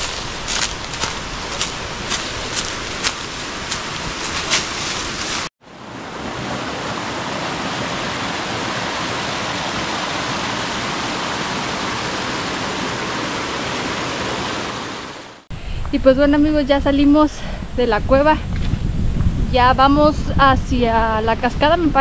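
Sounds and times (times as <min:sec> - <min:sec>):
footsteps on dry leaves: 0:00.0 - 0:05.5
stream rushing over rocks: 0:00.0 - 0:15.4.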